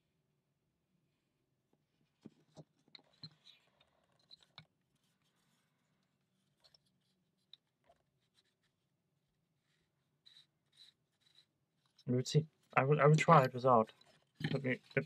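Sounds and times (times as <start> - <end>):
plywood parts clicking and scraping: 2.2 - 5.6, 10.3 - 15.0.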